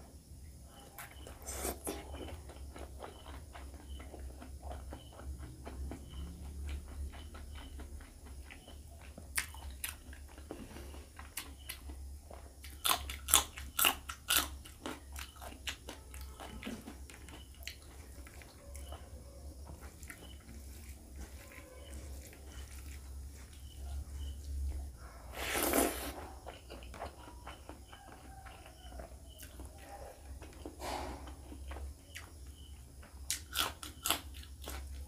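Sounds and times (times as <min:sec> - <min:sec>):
wet chewing: 0:00.8 - 0:35.0
crisp crunches of biting chilli: 0:12.6 - 0:15.8, 0:25.4 - 0:27.1, 0:33.3 - 0:34.9.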